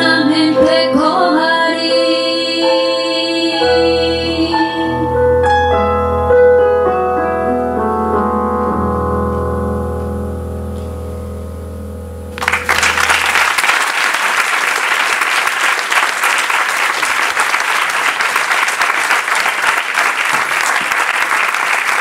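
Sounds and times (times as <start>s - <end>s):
keyboard chord: 0.0s - 13.7s
audience applause: 12.4s - 22.0s.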